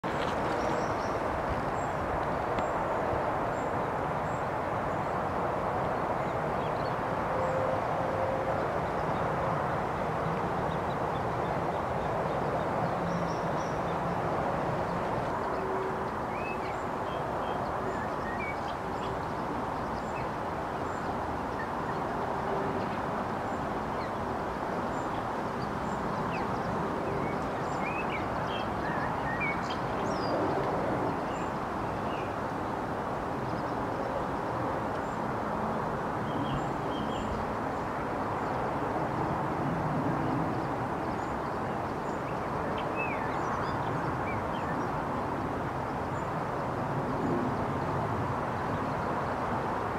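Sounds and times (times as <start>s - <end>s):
steady rushing noise: 0.0s - 49.9s.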